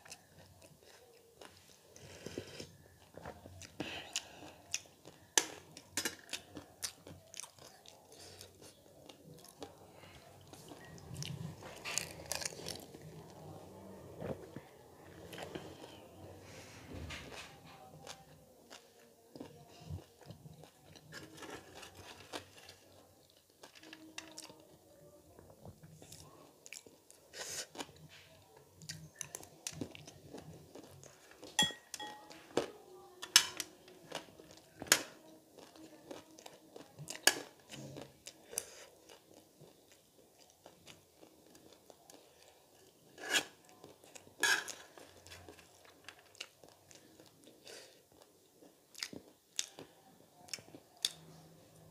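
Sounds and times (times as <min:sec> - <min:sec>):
chewing and crunching snack: 0:00.0 - 0:16.3, 0:17.1 - 0:51.9
metal spoon clinking on dish: 0:31.6 - 0:32.4.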